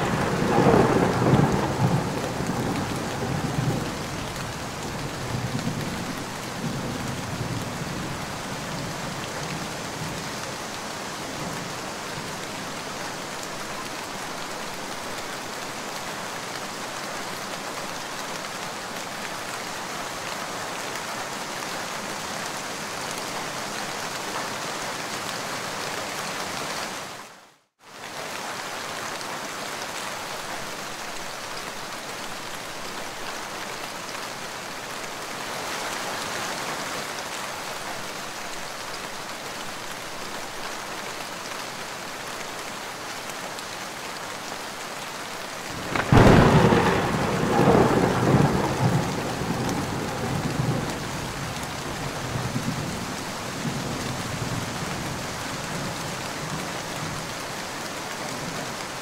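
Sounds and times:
steady rainfall: 0.0s - 59.0s
thunderclap rumbling: 45.7s - 51.6s.

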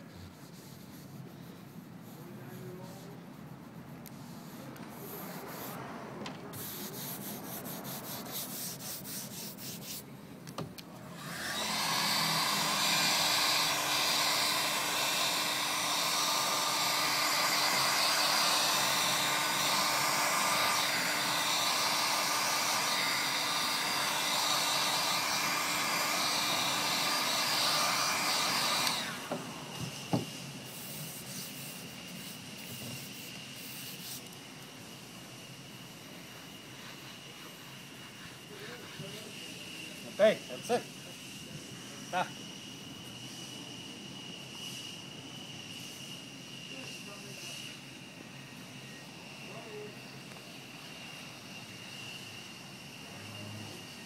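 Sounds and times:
hand rubbing vinyl pad: 0.0s - 5.8s, 6.5s - 10.1s, 30.6s - 34.3s
heat gun blowing with whine: 10.5s - 54.0s.

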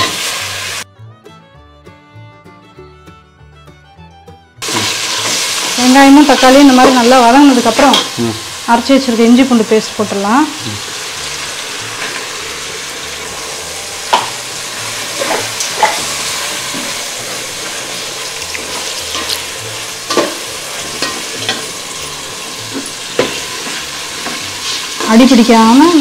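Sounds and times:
masala sizzling in a pot: 0.0s - 0.8s, 4.6s - 26.0s
metal ladle scraping a pot: 12.0s - 25.0s.

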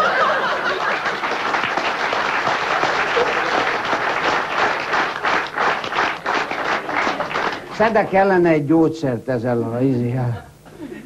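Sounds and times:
audience applauding: 0.0s - 8.1s.

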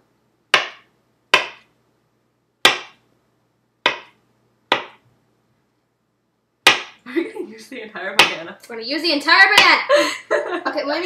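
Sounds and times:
knife chopping on hard surface: 0.5s - 1.7s, 2.6s - 3.0s, 3.9s - 5.0s, 6.7s - 7.0s, 8.2s - 8.4s.

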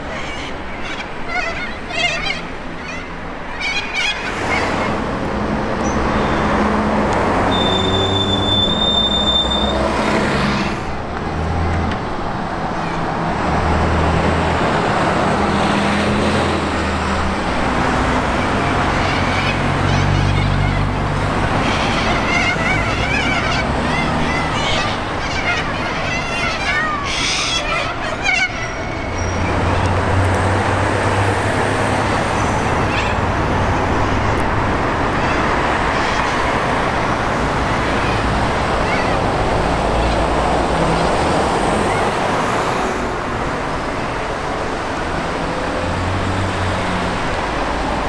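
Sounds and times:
geese honking: 0.0s - 5.0s, 17.6s - 30.2s, 31.9s - 34.3s, 35.1s - 42.3s
buses driving past: 0.0s - 48.0s
traffic noise: 0.0s - 48.0s
high squeal: 7.5s - 10.8s, 21.7s - 29.9s.

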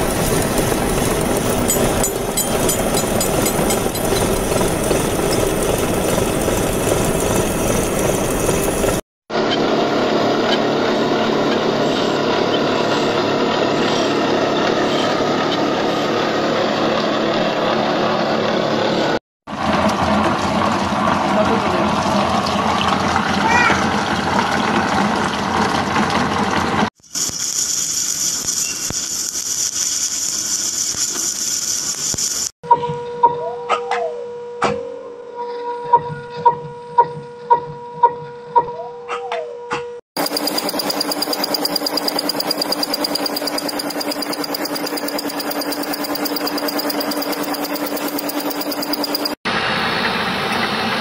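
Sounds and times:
welding machine hum and hiss: 0.0s - 9.0s, 27.0s - 32.5s, 40.2s - 49.4s
peeling machine running with water: 0.0s - 32.5s, 40.2s - 51.0s
milling cutter cutting steel: 0.2s - 9.0s, 40.2s - 49.4s
high whine: 40.2s - 50.0s.

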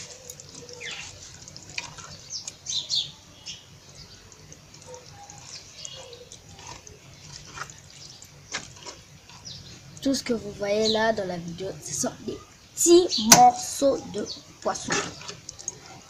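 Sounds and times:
liquid splashing: 0.0s - 2.7s
stirring with plastic fork: 0.0s - 2.9s, 3.9s - 10.2s, 14.6s - 16.0s
sauce bubbling in a pot: 0.0s - 10.4s.

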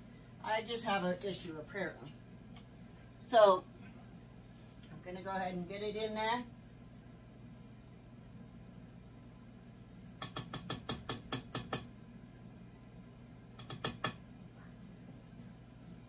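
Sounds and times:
utensils tapping on a bowl: 10.2s - 11.9s, 13.6s - 14.2s.

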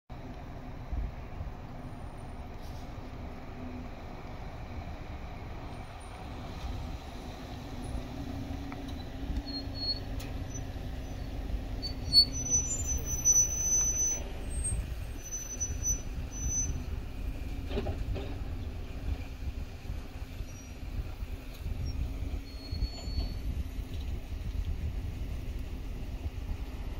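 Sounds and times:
car engine rumble inside cabin: 0.1s - 26.9s
high-pitched squeaks: 8.9s - 16.9s, 22.4s - 23.5s.

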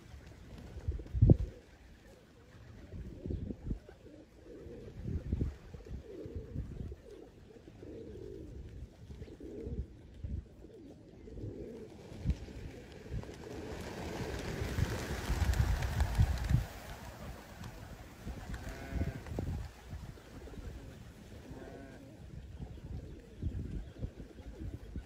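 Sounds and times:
pigeons cooing: 0.0s - 25.0s.

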